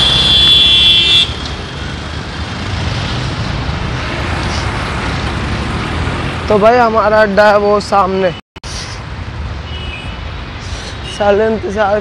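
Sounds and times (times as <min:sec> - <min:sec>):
vehicle horn blast: 0:00.0 - 0:01.4
road traffic rumble: 0:00.0 - 0:12.0.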